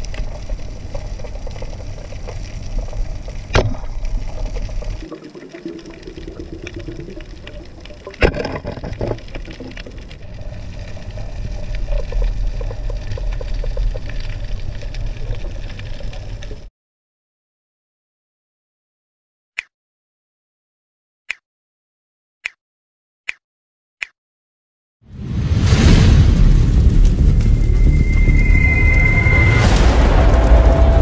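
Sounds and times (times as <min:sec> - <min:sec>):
underwater water rushing: 0:00.0 - 0:16.7, 0:25.6 - 0:31.0.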